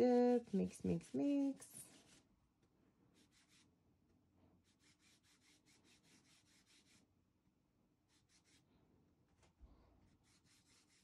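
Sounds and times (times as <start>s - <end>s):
paintbrush strokes on fabric: 0.0s - 2.3s, 3.1s - 3.8s, 8.1s - 8.7s.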